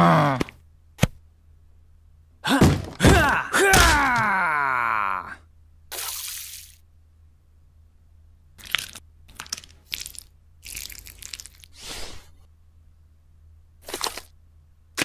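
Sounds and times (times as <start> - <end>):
sharp clicks of plastic pieces: 8.6 - 11.7
hands mixing plastic bricks: 8.6 - 11.9, 13.8 - 14.4.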